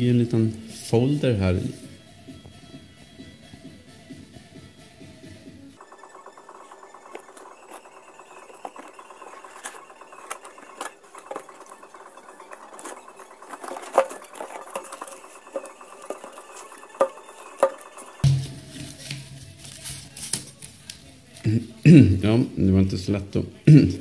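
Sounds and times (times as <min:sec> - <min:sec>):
cardboard rustling and scraping: 0:06.0 - 0:21.4.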